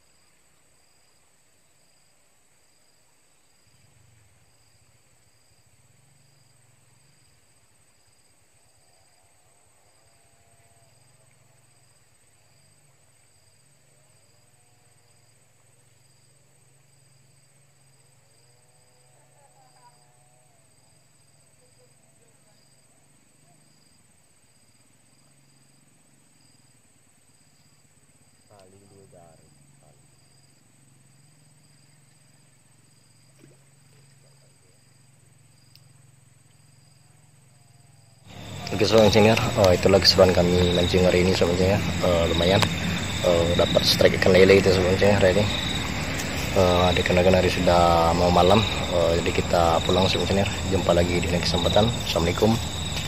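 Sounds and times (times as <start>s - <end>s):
insect high trill: 0.0s - 53.0s
low steady hum: 27.0s - 53.0s
insect short high chirp: 27.4s - 53.0s
faint clicks: 35.7s - 35.9s.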